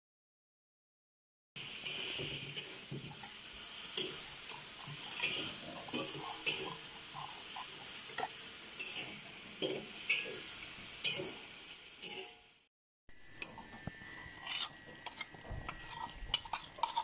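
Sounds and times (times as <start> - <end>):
spoon stirring paste in bowl: 13.4 - 17.0.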